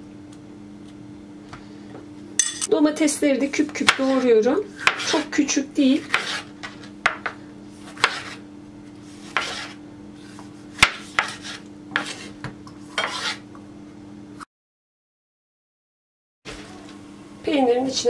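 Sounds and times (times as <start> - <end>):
knife chopping on wooden board: 4.8 - 5.3, 6.0 - 8.4, 9.2 - 13.4.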